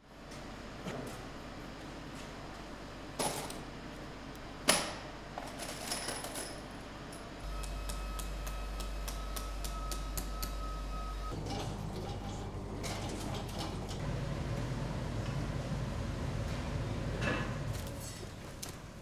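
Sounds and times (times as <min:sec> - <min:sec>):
electrical hum with thin whine: 0:00.0 - 0:19.0.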